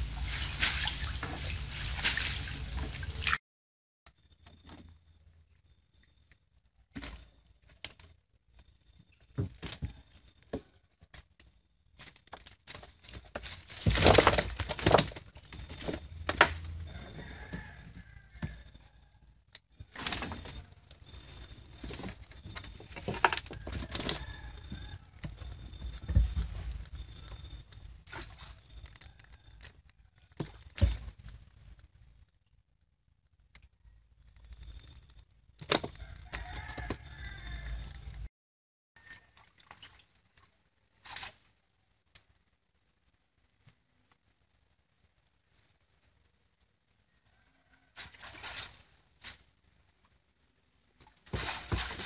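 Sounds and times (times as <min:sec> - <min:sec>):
fish dropping into foam box: 0:13.3 - 0:15.2, 0:51.2 - 0:52.0
mesh fish trap rustling: 0:51.2 - 0:52.0.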